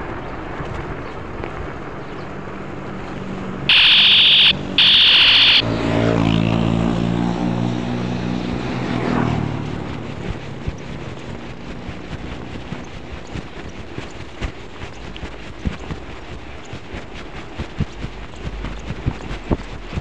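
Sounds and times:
electronic siren tone: 3.7s - 5.7s
motorbike passing: 5.6s - 11.7s.

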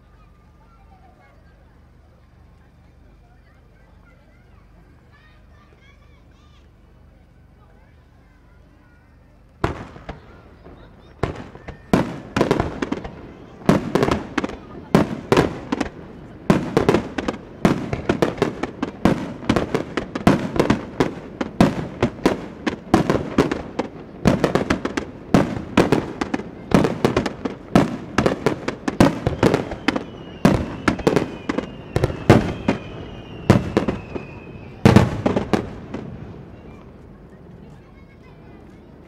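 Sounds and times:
falling firework whistle: 8.6s - 37.6s
firework booms: 9.6s - 38.6s.

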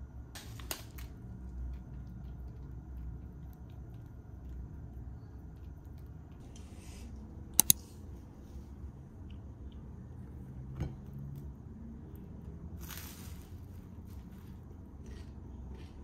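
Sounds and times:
sharp clicks: 7.6s - 7.8s.

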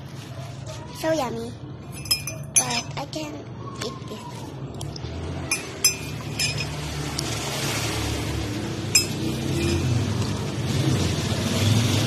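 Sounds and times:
metal spoon clinking: 1.9s - 3.0s, 5.5s - 6.9s, 8.9s - 10.1s.

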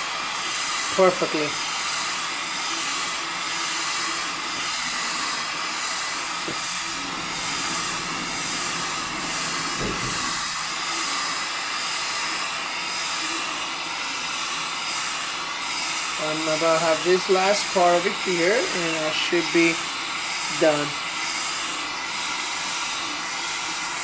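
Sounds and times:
gas torch hissing: 0.0s - 24.0s
short low knock: 9.7s - 10.3s.

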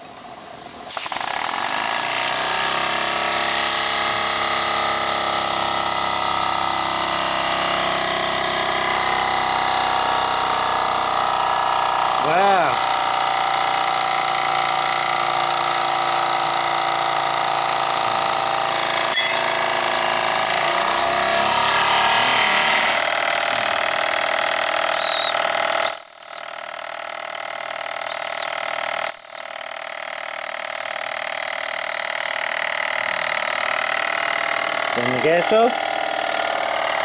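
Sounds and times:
toy steam engine whirring: 0.0s - 37.0s
steam whistle toots: 24.9s - 26.4s, 28.1s - 29.4s.

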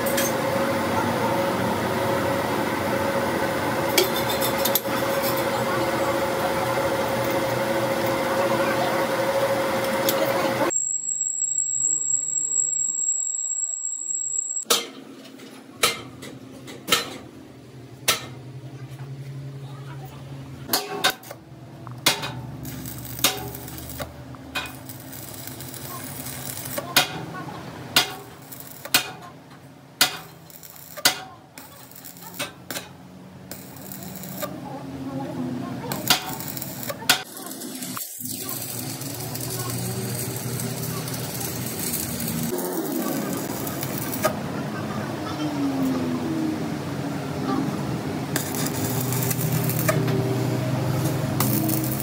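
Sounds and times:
welding electrode cracks and clicks: 20.7s - 27.2s, 28.0s - 29.3s, 30.0s - 34.5s, 35.9s - 44.4s, 48.4s - 50.2s, 51.0s - 52.0s
welding arc crackle: 22.5s - 27.2s, 28.0s - 29.2s, 30.0s - 34.6s, 35.8s - 44.4s, 48.3s - 52.0s.

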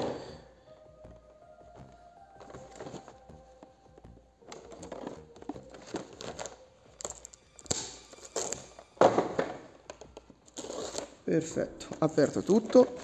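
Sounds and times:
plastic film tearing and crinkling: 4.5s - 9.0s, 9.9s - 11.2s.

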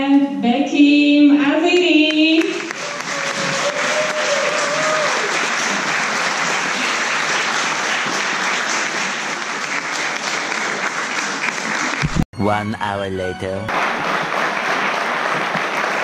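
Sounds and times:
audience applauding: 2.4s - 12.2s, 13.7s - 16.0s.

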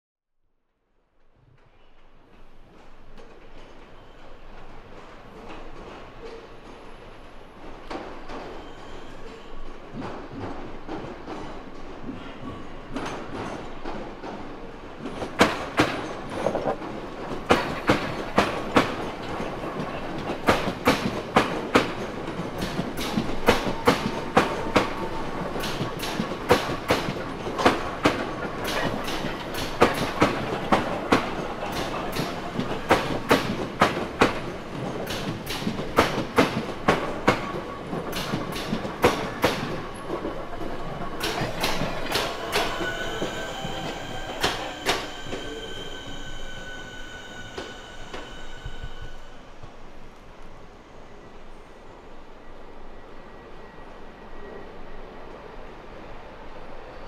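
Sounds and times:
train wheels clicking over rails: 1.6s - 50.5s
faint wheel squeal: 8.5s - 9.7s, 41.7s - 49.6s
train rumble: 9.7s - 50.8s.

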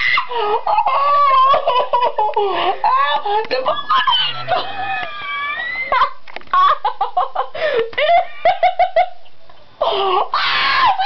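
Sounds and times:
woman laughing hysterically: 0.0s - 11.0s
woman squealing: 2.9s - 6.2s, 10.1s - 11.0s.

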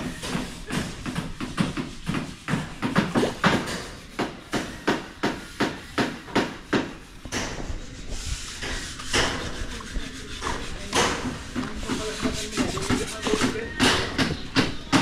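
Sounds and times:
sharp knocks: 10.4s - 15.0s.

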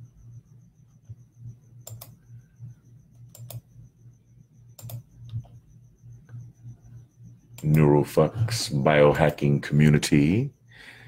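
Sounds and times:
low steady hum: 0.0s - 11.0s
computer mouse clicks: 1.8s - 2.2s, 3.1s - 3.7s, 4.8s - 5.6s, 7.6s - 7.8s.

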